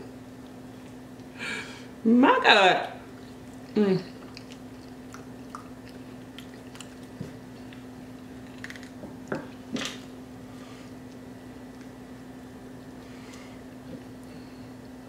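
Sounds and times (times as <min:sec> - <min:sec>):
person chewing: 0:03.2 - 0:09.0.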